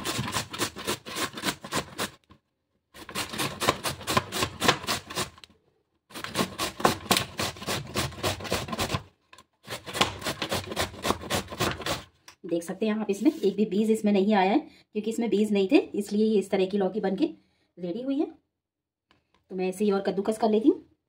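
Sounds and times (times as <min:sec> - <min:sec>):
grating on metal grater: 0:00.0 - 0:02.2, 0:03.0 - 0:05.4, 0:06.1 - 0:09.0, 0:09.7 - 0:12.1.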